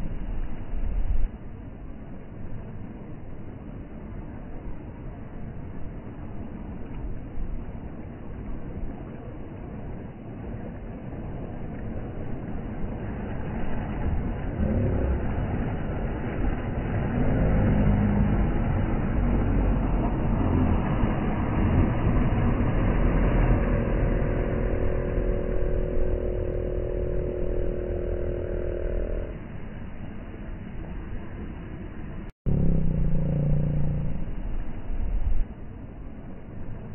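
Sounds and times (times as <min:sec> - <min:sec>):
motorboat engine running: 0:00.0 - 0:36.9
small waves washing: 0:01.4 - 0:28.2
pitched engine note: 0:14.0 - 0:29.5, 0:32.5 - 0:34.7.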